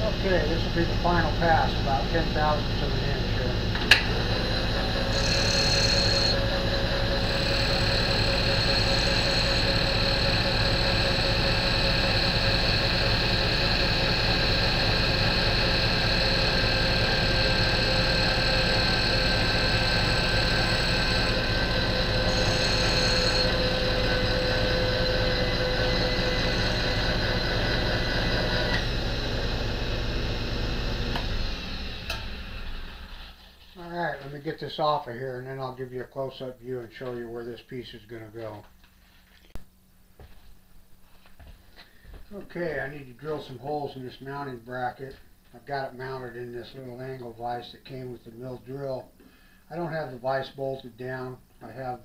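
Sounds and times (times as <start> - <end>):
milling machine motor whining: 0.0 - 33.4.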